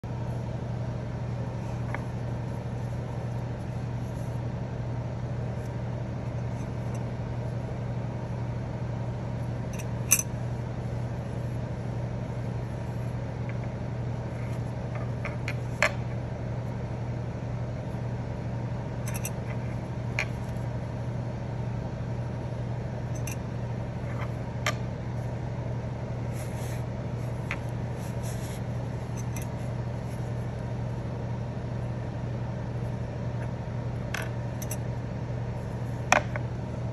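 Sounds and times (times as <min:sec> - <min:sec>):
steady low hum: 0:00.0 - 0:36.9
metal collar rings clicking: 0:19.1 - 0:19.4, 0:34.6 - 0:34.8.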